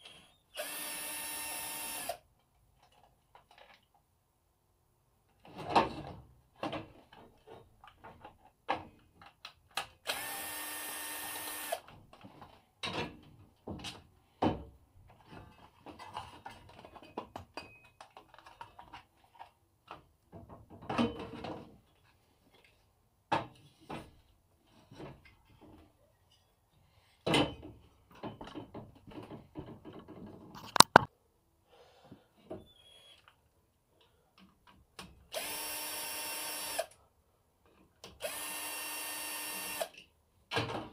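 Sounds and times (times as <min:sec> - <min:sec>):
cordless drill running: 0:00.6 - 0:02.2, 0:10.1 - 0:11.8, 0:35.3 - 0:36.9, 0:38.2 - 0:40.0
plastic and metal parts clattering: 0:11.9 - 0:21.8.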